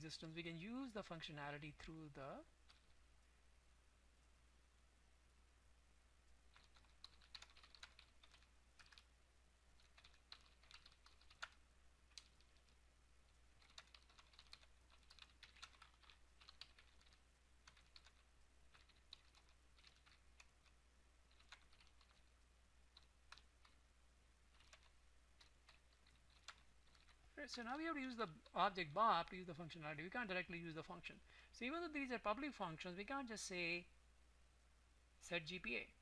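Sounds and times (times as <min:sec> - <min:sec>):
low steady hum: 0:00.0 - 0:36.0
typing on computer keyboard: 0:06.5 - 0:09.1, 0:09.8 - 0:12.8, 0:13.6 - 0:22.3, 0:22.9 - 0:23.8, 0:24.5 - 0:27.2.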